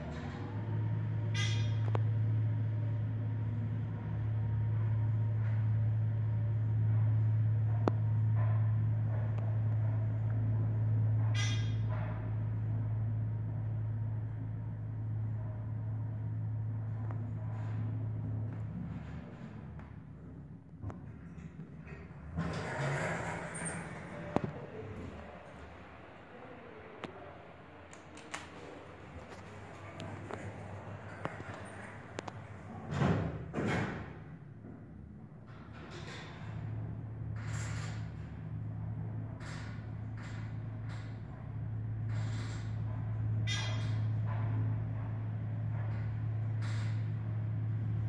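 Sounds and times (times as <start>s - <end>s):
elevator low hum: 0.0s - 48.0s.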